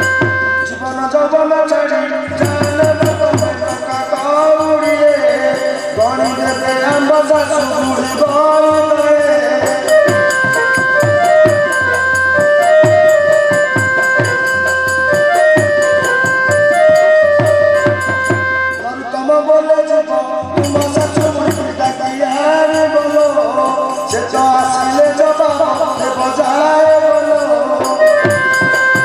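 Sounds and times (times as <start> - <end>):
steady drum beat: 2.3 - 18.6, 20.4 - 29.0
folk dance melody: 2.4 - 19.2, 25.5 - 29.0.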